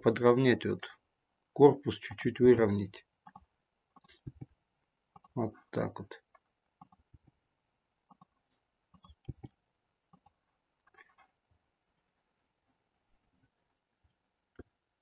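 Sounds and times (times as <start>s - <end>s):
mouse and keyboard clicks: 6.8s - 7.1s, 8.1s - 9.5s, 10.1s - 11.2s.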